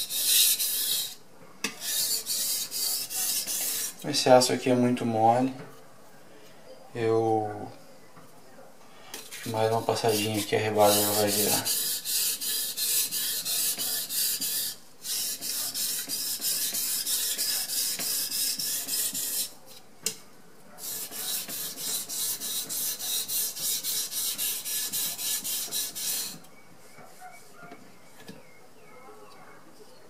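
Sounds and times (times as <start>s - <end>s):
knife scraping on whetstone: 0.0s - 4.0s, 9.2s - 19.5s, 20.8s - 26.4s.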